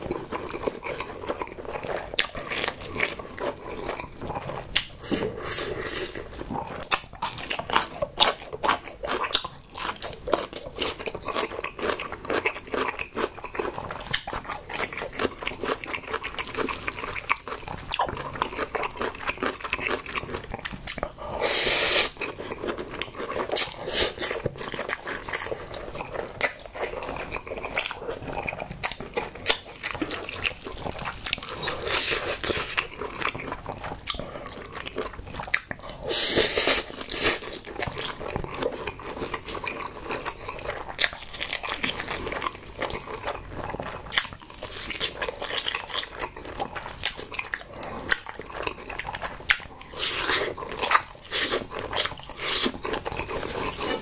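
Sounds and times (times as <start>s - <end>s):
chewing with wet mouth clicks: 0.0s - 21.4s, 22.0s - 54.0s
slurping noodles: 21.1s - 24.4s, 36.0s - 37.6s.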